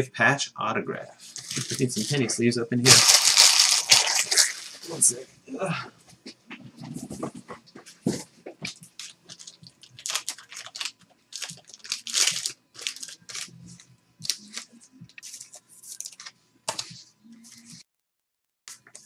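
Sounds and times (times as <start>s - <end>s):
plastic card sleeves crinkling: 1.2s - 5.2s, 8.7s - 17.8s.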